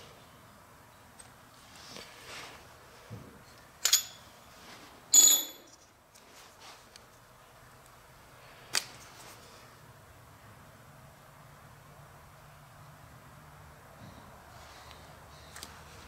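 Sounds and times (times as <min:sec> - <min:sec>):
metal parts clinking: 0:03.8 - 0:04.3, 0:05.1 - 0:05.9.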